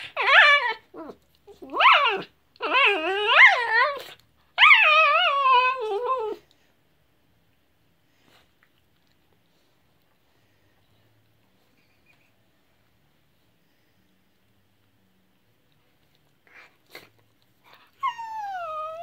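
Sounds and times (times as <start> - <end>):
dog whining: 0.0 - 6.5, 17.7 - 19.0.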